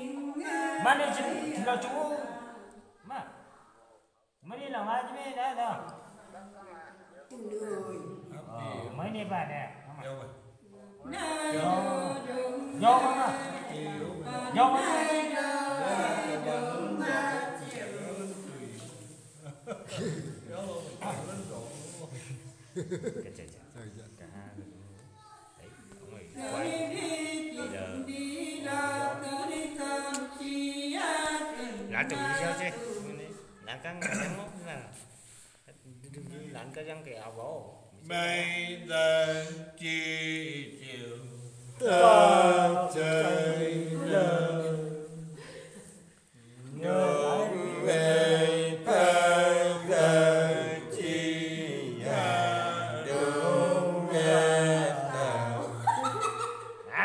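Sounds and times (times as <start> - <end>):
woman singing unaccompanied: 0.0 - 2.6, 11.0 - 16.1, 26.4 - 33.1
person singing unaccompanied: 11.1 - 17.6.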